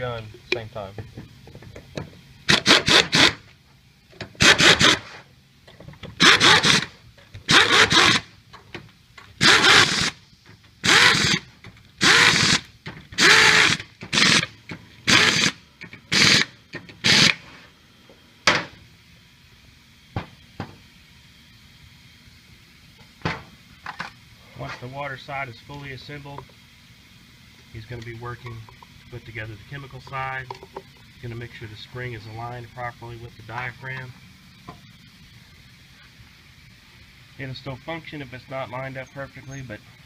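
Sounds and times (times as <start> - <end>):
pneumatic screw gun bursts: 2.4 - 3.5, 4.4 - 5.2, 6.1 - 8.3, 9.4 - 10.2, 10.8 - 17.5.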